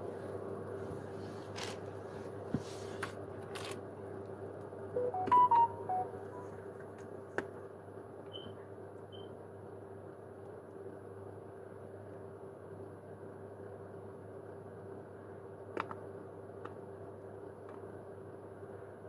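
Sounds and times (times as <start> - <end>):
steady background hum: 0.0 - 19.0
electronic beeps at different pitches: 5.0 - 6.5
short high beeps: 5.0 - 6.5.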